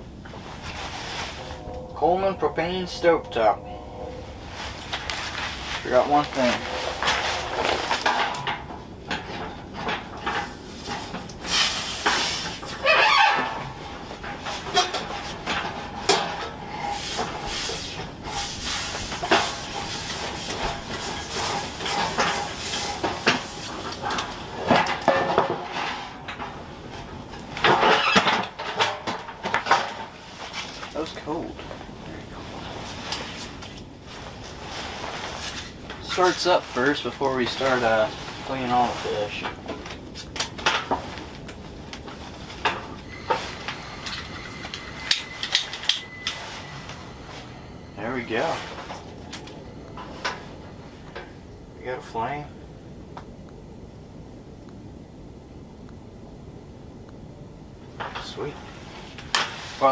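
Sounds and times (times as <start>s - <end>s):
gas hiss: 11.4s - 12.7s, 16.8s - 23.7s.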